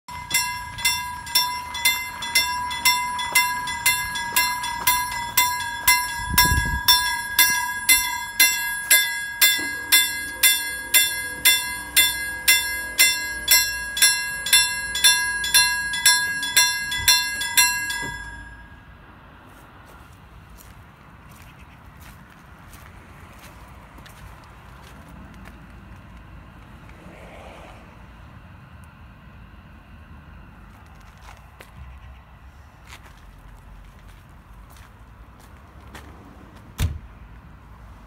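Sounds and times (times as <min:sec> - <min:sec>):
level crossing warning bell: 0:00.1 - 0:19.3.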